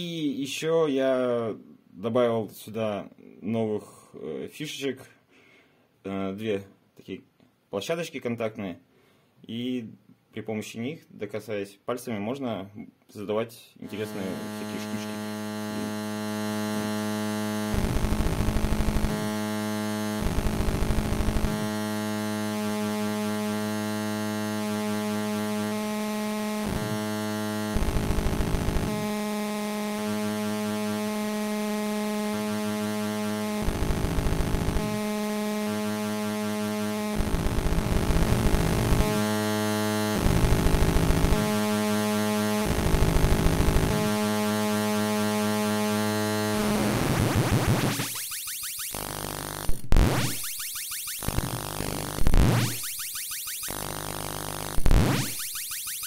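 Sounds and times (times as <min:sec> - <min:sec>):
buzzing synthesizer drone: 0:13.8 - 0:56.0
harsh noisy synth bursts: 0:13.9 - 0:56.0
fast pulsing synth pattern: 0:14.0 - 0:23.4, 0:47.2 - 0:56.0.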